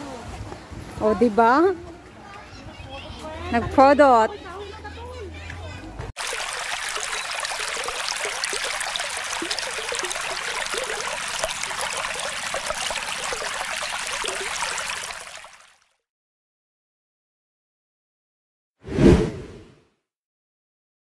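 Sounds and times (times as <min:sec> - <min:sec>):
rushing bubbling water: 0:06.2 - 0:15.8.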